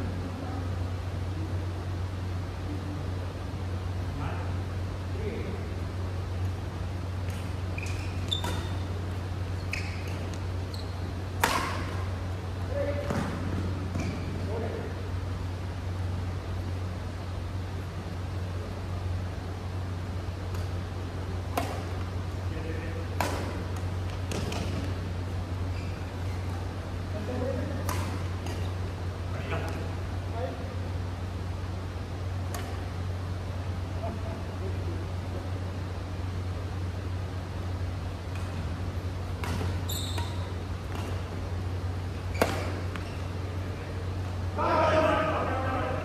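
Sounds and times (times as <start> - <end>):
low steady hum: 0.0 - 46.0
rackets hitting shuttlecock: 7.2 - 10.5, 11.3 - 12.2, 20.4 - 20.8, 21.4 - 25.2, 27.4 - 29.9, 32.4 - 33.0, 38.2 - 43.4
shoe squeak: 7.7 - 8.9, 9.6 - 11.2, 14.0 - 14.4, 25.7 - 26.6, 39.8 - 41.1, 42.2 - 43.4.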